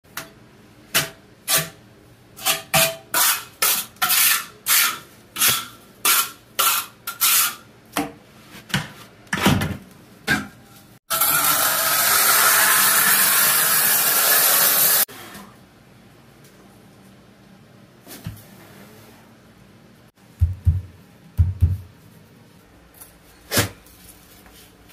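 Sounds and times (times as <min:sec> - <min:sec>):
trowel scraping mortar: 0:02.4 - 0:07.6.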